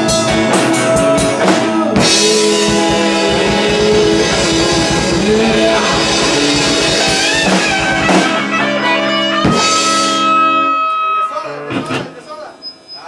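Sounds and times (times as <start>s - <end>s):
fast steady drumming: 0.0s - 8.8s
distorted electric guitar chords: 0.0s - 12.0s.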